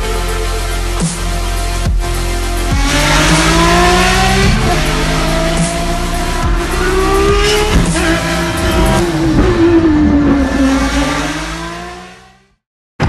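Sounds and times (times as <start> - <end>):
racing engine revving: 2.6 - 12.5.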